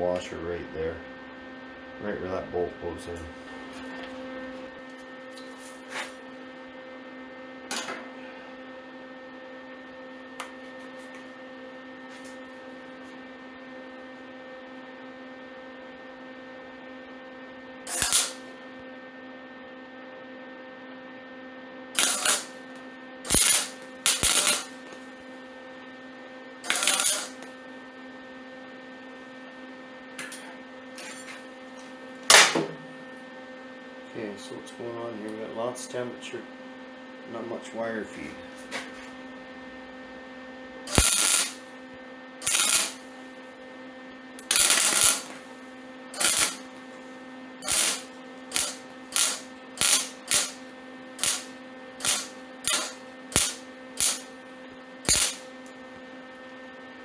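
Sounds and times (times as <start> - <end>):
welder steady hum: 0.0 - 57.0
welder tack-weld bursts: 17.9 - 18.4, 22.0 - 22.6, 23.3 - 24.8, 26.7 - 27.5, 40.9 - 41.6, 42.4 - 43.0, 44.4 - 45.4, 46.2 - 46.6, 47.6 - 50.6, 51.2 - 54.3, 55.1 - 55.4.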